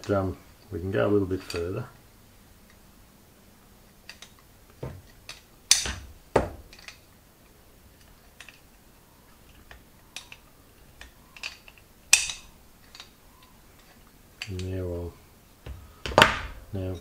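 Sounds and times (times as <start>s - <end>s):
metal parts clicking and knocking: 1.4s - 1.8s, 4.0s - 7.1s, 8.0s - 14.8s.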